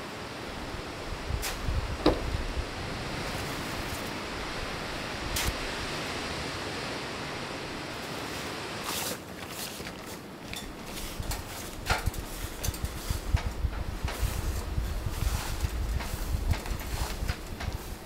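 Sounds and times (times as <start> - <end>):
wind rushing: 0.6 - 7.9, 11.2 - 18.0
metal bucket clinking: 8.9 - 13.2
footsteps on metal stepladder: 8.9 - 18.0.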